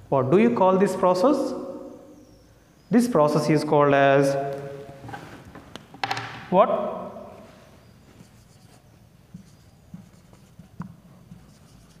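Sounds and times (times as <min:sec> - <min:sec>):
marker pen writing on whiteboard: 0:07.6 - 0:12.0.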